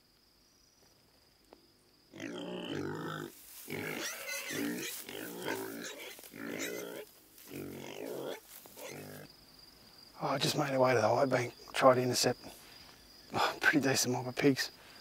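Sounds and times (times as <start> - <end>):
wild boar grunting squeals: 2.2 - 9.3.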